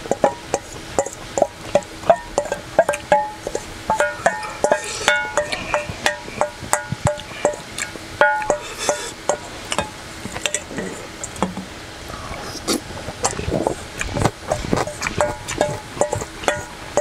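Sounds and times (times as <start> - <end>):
chewing: 0.5 - 11.4, 12.1 - 17.0
spoon scraping a steel bowl: 2.4 - 7.6.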